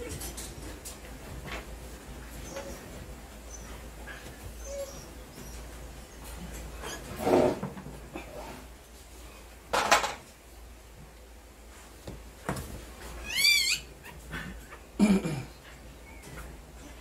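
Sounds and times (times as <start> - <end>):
puppy squealing: 13.2 - 14.2.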